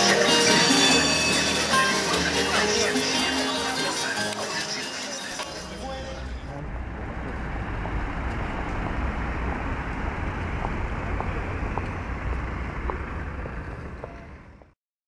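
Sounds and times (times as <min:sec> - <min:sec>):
low rumble of traffic: 0:05.4 - 0:14.8.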